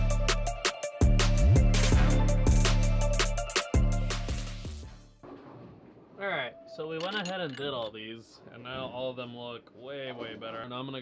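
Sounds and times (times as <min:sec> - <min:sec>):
music with deep bass and drums: 0:00.0 - 0:05.2.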